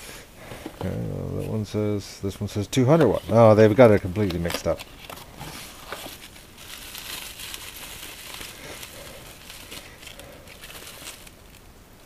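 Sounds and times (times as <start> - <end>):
bubble wrap crinkling: 3.0 - 12.0.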